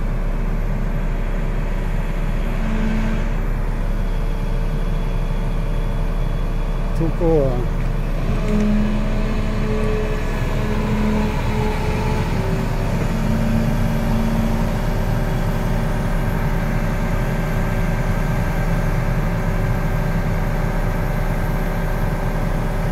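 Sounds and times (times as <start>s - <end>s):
excavator diesel engine running: 0.0s - 22.9s.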